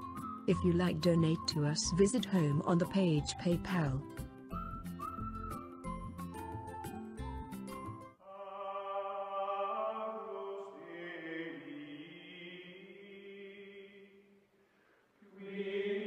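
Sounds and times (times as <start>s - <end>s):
choral chords: 8.2s - 14.2s.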